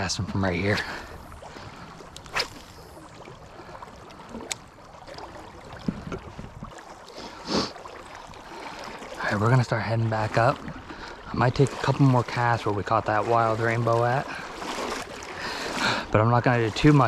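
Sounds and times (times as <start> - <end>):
shallow river water flowing: 0.0 - 17.0
fishing rod swish: 2.0 - 3.0
wind on microphone: 5.7 - 6.8.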